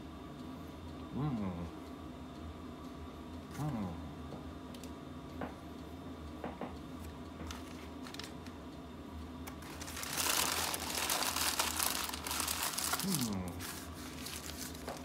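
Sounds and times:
low steady hum: 0.0 - 15.0
paper wrapper crinkling: 7.5 - 8.5, 9.5 - 15.0.

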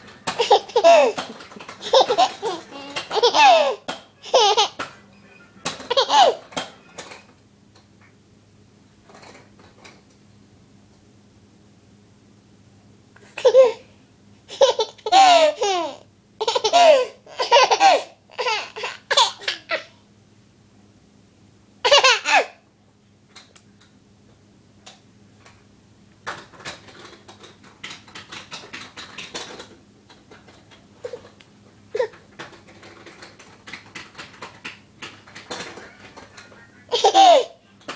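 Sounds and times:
baby laughing: 0.3 - 4.9, 5.8 - 6.4, 13.4 - 13.8, 14.5 - 20.0, 21.8 - 22.6, 36.9 - 37.6.

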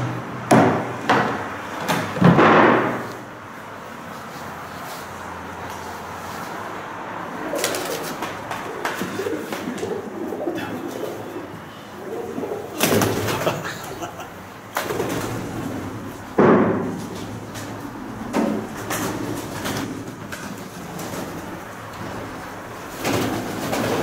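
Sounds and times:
loud knocks: 0.5 - 3.1, 16.4 - 17.1
pigeons cooing: 7.2 - 16.2.

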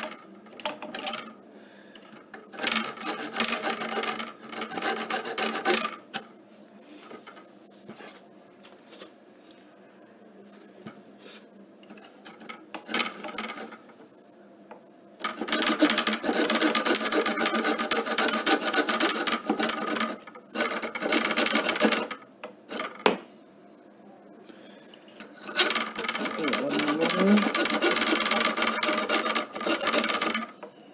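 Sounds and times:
hand saw cutting metal: 2.6 - 5.9, 15.4 - 22.1, 25.4 - 30.4.

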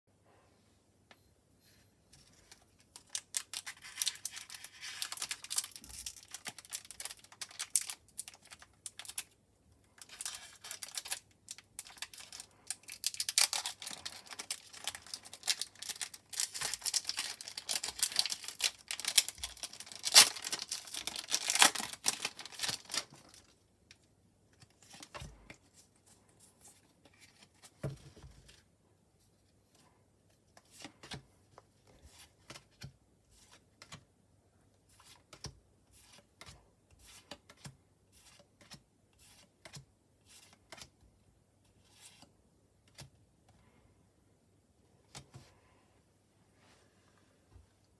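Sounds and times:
cards handling sounds: 2.2 - 23.5, 34.9 - 41.0
foil wrapper crinkling and tearing: 2.9 - 9.4, 10.0 - 23.4.

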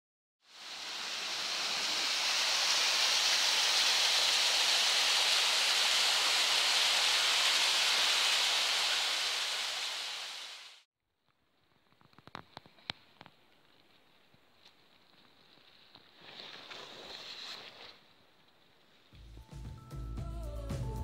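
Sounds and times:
water falling over waterfall: 0.5 - 10.8.

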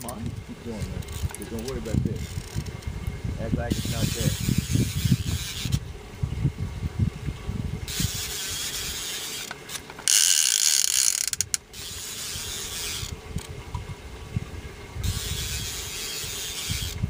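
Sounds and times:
reel drag buzzing: 0.0 - 17.0
fishing reel clicking: 1.0 - 2.7, 3.7 - 5.8, 7.9 - 13.5, 15.0 - 17.0.

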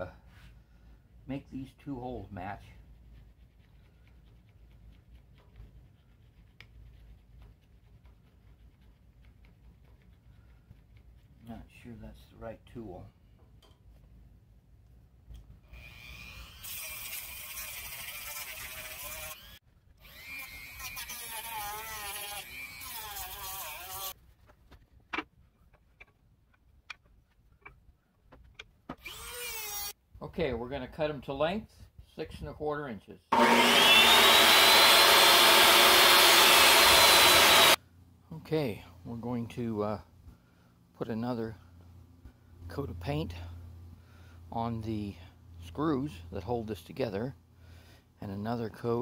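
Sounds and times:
wooden blocks and tool clicking: 25.0 - 29.2.

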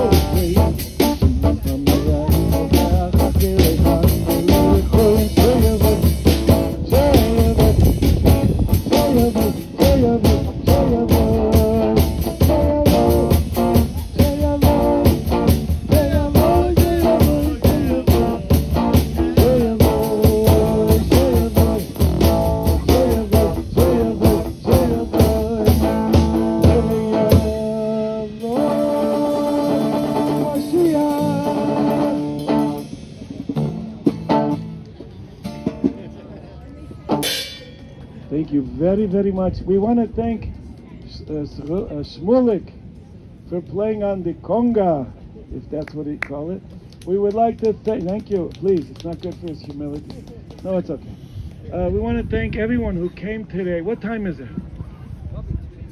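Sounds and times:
drum kit: 0.0 - 36.2, 37.1 - 37.7
electric guitars: 0.0 - 36.2
live rock band playing: 0.0 - 36.2, 37.0 - 37.6.

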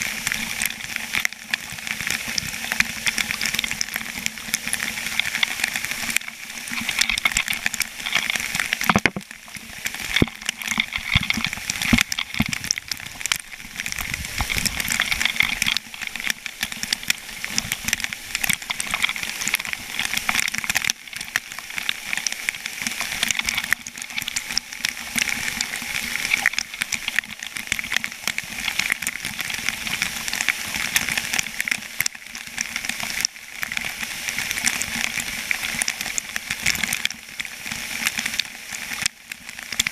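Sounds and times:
water pouring and splashing: 0.0 - 39.9.

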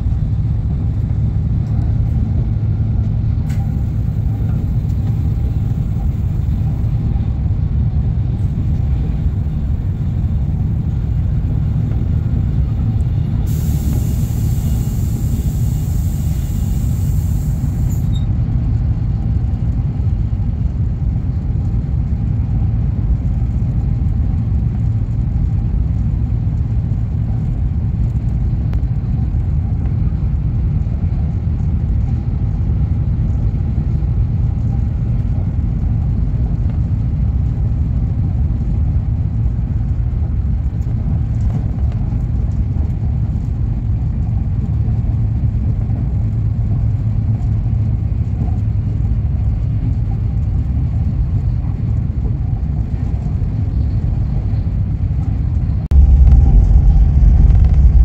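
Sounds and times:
train rumble inside carriage: 0.0 - 58.0
high hiss: 13.5 - 18.1.

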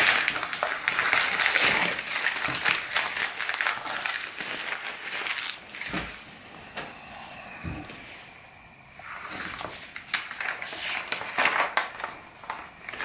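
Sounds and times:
magazine pages rustling: 9.1 - 13.0.

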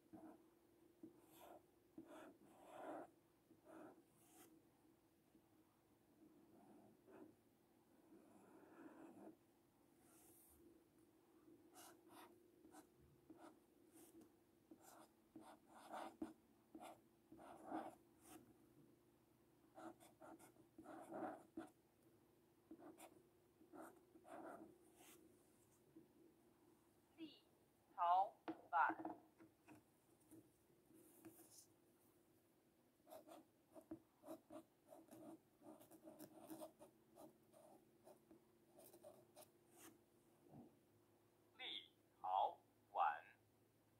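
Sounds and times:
marker scratching on paper: 1.0 - 4.5, 8.0 - 9.4, 11.7 - 18.4, 19.8 - 21.8, 22.7 - 25.2, 33.1 - 39.9.

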